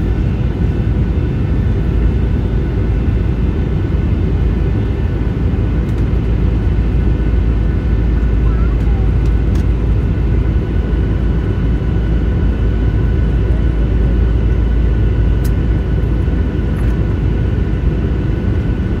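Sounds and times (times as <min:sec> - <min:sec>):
airliner engine rumble: 0:00.0 - 0:19.0.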